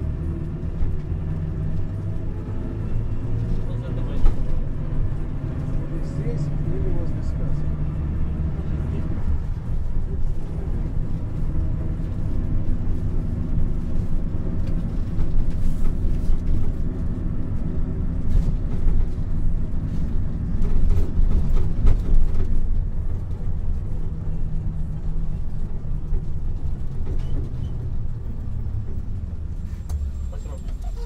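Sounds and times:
road and engine rumble in a car: 0.0 - 31.0.

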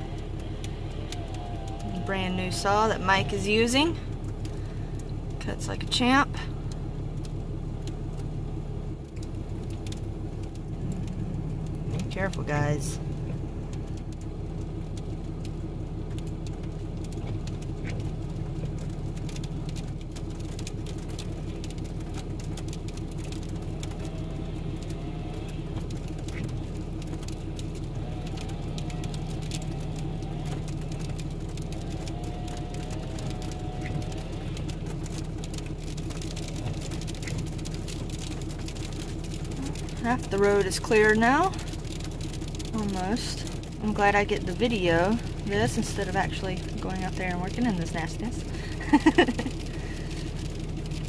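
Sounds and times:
diesel engine idling: 0.0 - 51.0
wet snow ticking on windshield: 0.0 - 51.0.

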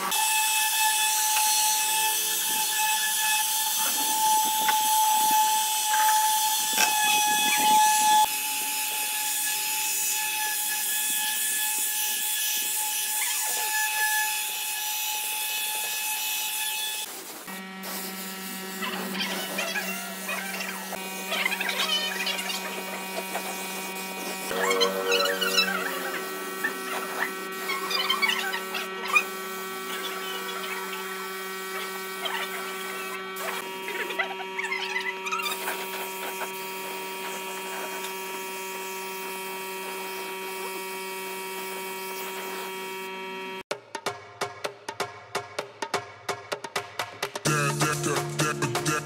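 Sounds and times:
electric motor humming: 17.5 - 43.6
short wavering chirps: 24.5 - 29.3.

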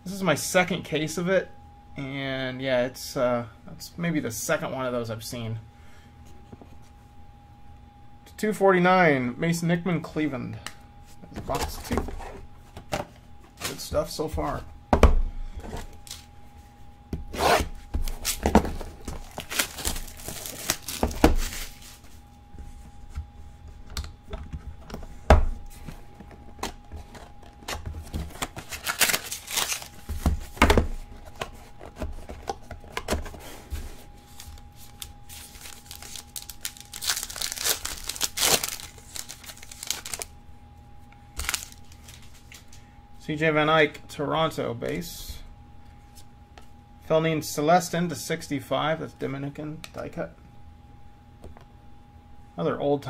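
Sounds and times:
packaging tearing and rustling: 17.3 - 22.2, 26.4 - 33.6, 34.2 - 40.3, 41.4 - 42.7.

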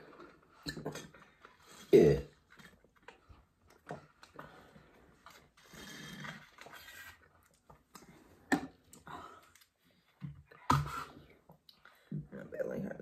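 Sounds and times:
plastic bottles clicking and knocking: 0.0 - 4.6
slurping through straws: 4.1 - 7.4.

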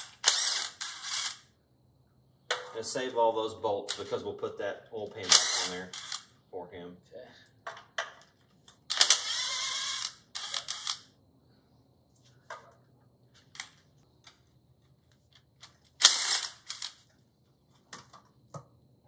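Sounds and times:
air wrench running: 0.0 - 1.5, 5.2 - 6.3, 8.8 - 11.1, 16.0 - 17.0.

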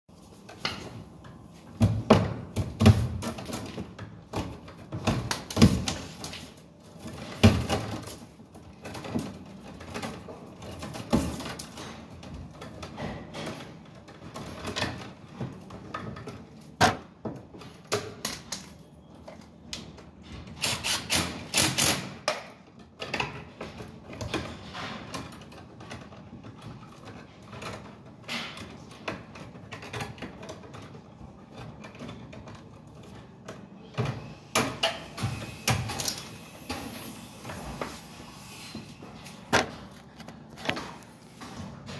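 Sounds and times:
hand tools and wire clicking: 17.5 - 37.8.

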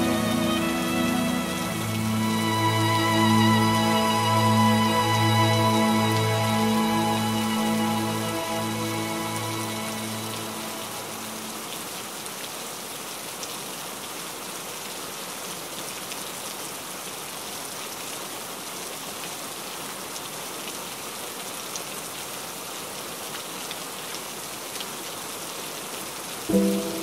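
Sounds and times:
soft background music: 0.0 - 11.6, 26.5 - 27.0
heavy rain hissing: 0.0 - 12.8, 26.4 - 27.0.

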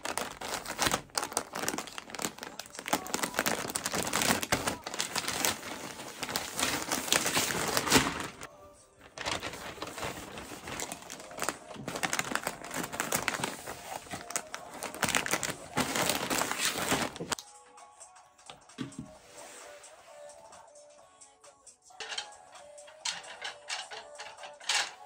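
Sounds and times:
plastic mailer bag crinkling: 0.0 - 17.4.

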